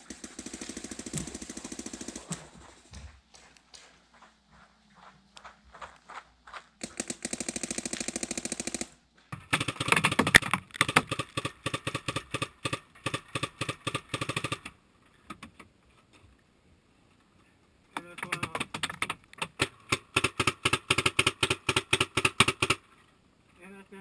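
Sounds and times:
scattered shots or pops: 0:00.0 - 0:02.6, 0:06.8 - 0:14.7, 0:18.0 - 0:22.8
paintball marker firing rapidly: 0:00.0 - 0:02.8, 0:06.5 - 0:14.8, 0:18.0 - 0:22.9.

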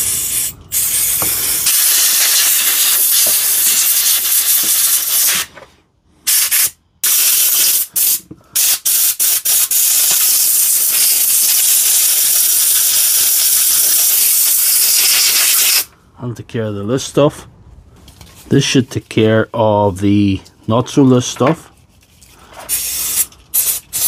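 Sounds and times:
aerosol spray hissing: 0:00.0 - 0:05.5, 0:22.7 - 0:24.0
compressed air blow gun blasts: 0:00.0 - 0:05.5, 0:06.2 - 0:15.9, 0:22.7 - 0:24.0.

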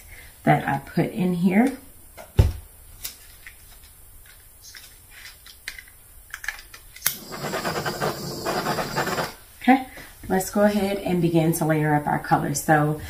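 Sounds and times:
blowtorch clicking and hissing: 0:07.0 - 0:09.4.

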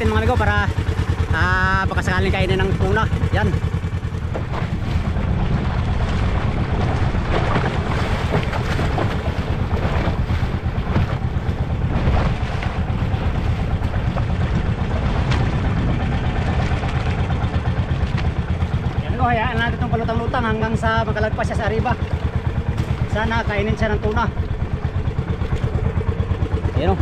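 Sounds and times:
boat engine pulsing: 0:00.0 - 0:27.0
choppy sea washing: 0:00.0 - 0:27.0
wind on microphone: 0:04.3 - 0:21.0.

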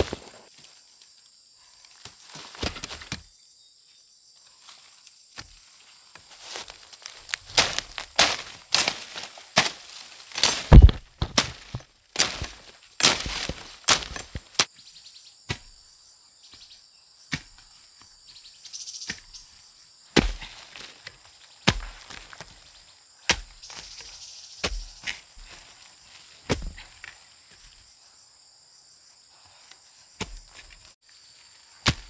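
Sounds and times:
high insect drone: 0:00.0 - 0:32.0
sharp knocks on wood: 0:10.7 - 0:11.8.

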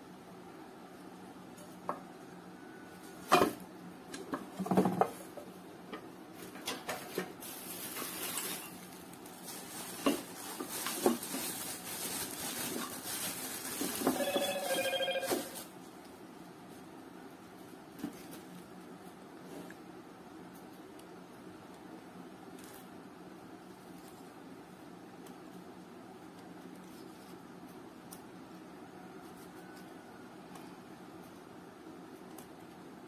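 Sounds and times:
bubble wrap rustling: 0:06.4 - 0:15.9.

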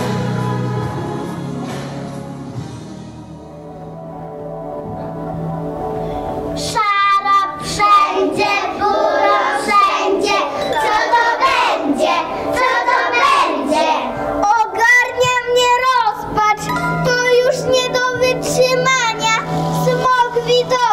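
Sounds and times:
children singing together: 0:06.6 - 0:15.9
held instrumental chord: 0:16.4 - 0:20.7.

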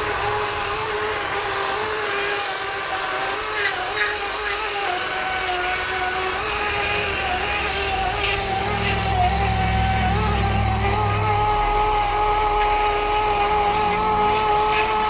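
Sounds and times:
chainsaw cutting log: 0:00.0 - 0:11.1.

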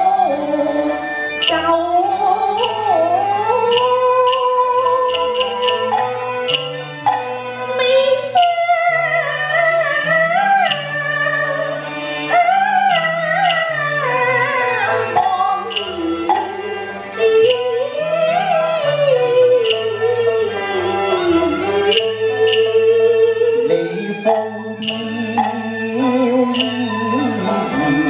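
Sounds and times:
woman singing opera: 0:00.0 - 0:05.9, 0:07.8 - 0:28.0
instrumental accompaniment: 0:00.0 - 0:28.0
sharp percussion clicks: 0:01.4 - 0:01.8, 0:02.5 - 0:07.4, 0:10.6 - 0:11.1, 0:12.9 - 0:13.8, 0:15.2 - 0:16.6, 0:19.6 - 0:19.9, 0:21.8 - 0:22.9, 0:24.0 - 0:27.2.

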